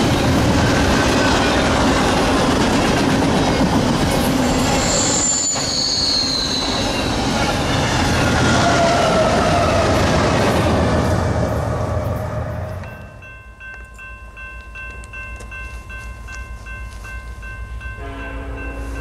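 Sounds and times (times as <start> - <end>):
train wheels rumbling on rail: 0.0 - 19.0
high-pitched wheel squeal: 4.4 - 10.1
lower wheel squeal: 4.4 - 10.1.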